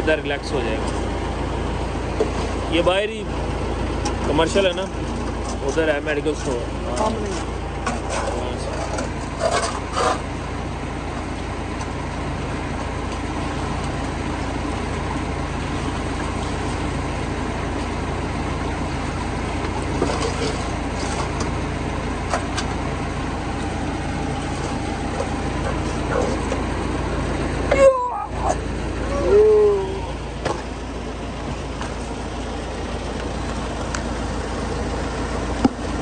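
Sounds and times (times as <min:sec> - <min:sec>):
diesel engine droning: 0:00.0 - 0:36.0
metal bucket knocks and scrapes: 0:19.9 - 0:21.6.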